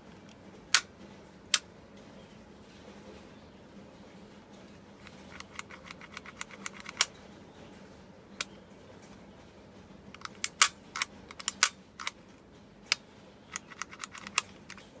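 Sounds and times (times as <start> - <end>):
pistol mechanism clicking: 10.2 - 12.2, 12.9 - 14.8.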